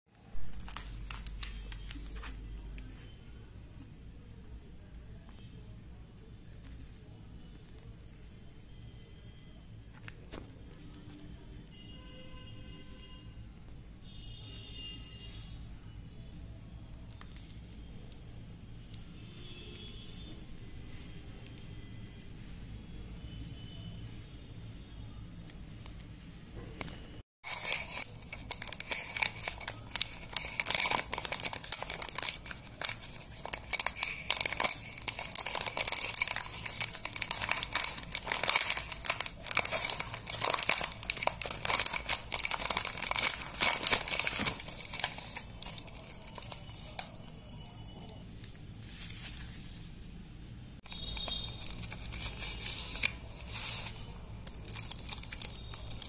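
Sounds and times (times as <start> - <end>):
wrapper and foil crinkling: 0.2 - 2.9, 27.4 - 49.9, 50.8 - 56.0.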